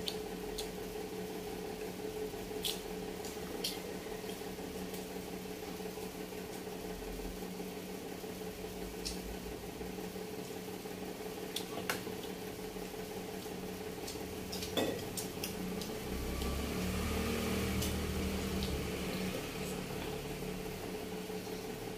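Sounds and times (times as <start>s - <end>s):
chewing: 0.0s - 0.8s, 2.5s - 5.1s, 11.4s - 12.4s, 13.3s - 16.6s, 17.6s - 20.2s
low appliance hum: 0.0s - 21.9s.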